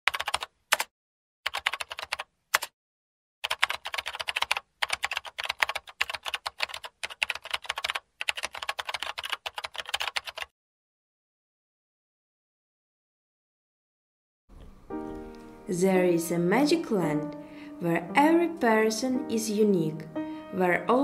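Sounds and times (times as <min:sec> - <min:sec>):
keyboard key clicks: 0:01.5 - 0:02.7.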